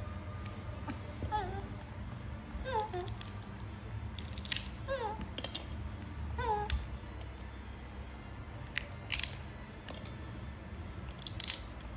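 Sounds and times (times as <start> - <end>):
chestnut shells cracking: 2.7 - 11.9
baby monkey squeak: 6.3 - 7.1.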